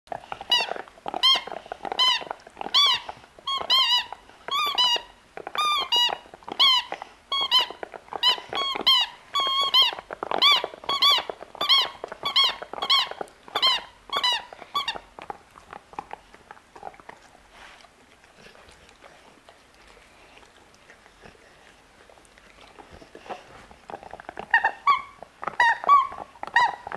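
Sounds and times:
squeaky toy ball squeaking: 0:00.5 - 0:15.0, 0:24.5 - 0:26.9.

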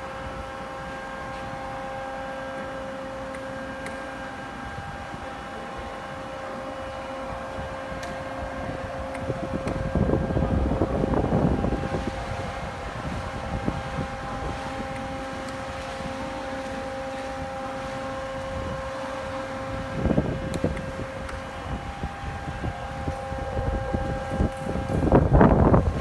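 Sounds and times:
hydraulic pump motor whining: 0:00.0 - 0:26.0
low rumbles: 0:00.0 - 0:26.0.

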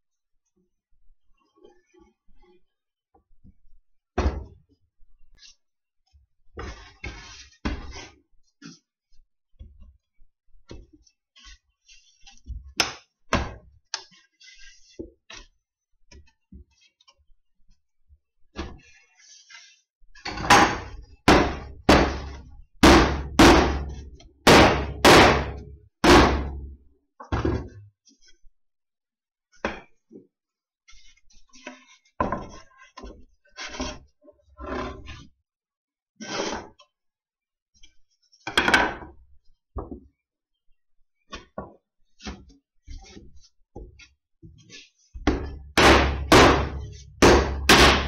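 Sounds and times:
wooden boards knocking on workbench: 0:20.4 - 0:26.7, 0:45.2 - 0:48.0
loud knocks on wood: 0:20.5 - 0:26.7, 0:45.3 - 0:48.0.

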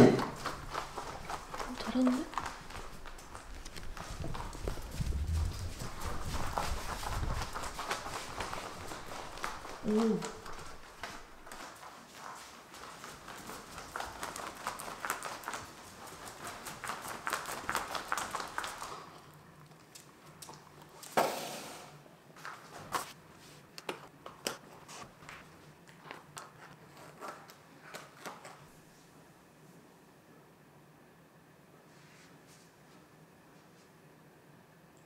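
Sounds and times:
footsteps on tile floor: 0:00.0 - 0:19.2
rubber booties rustling: 0:00.3 - 0:14.7.

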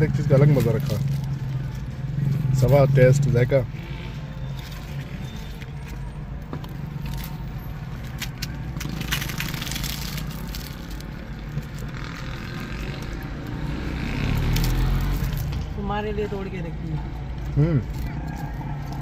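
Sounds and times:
crisp bread tearing: 0:08.0 - 0:13.2.

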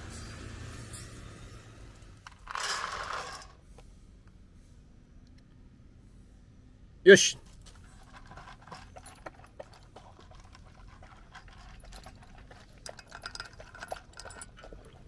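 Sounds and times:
dog crunching dry kibble: 0:07.4 - 0:15.0.

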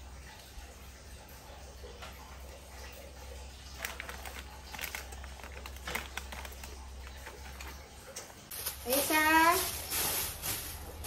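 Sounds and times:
plastic wrapper crinkling: 0:03.7 - 0:11.0.

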